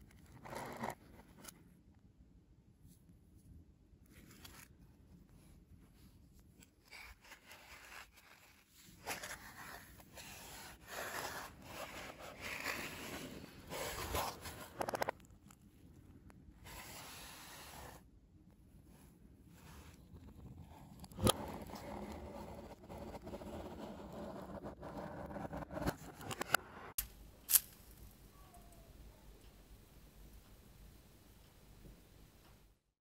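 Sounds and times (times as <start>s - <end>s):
gloves rubbing on cardboard: 7.2s - 14.8s.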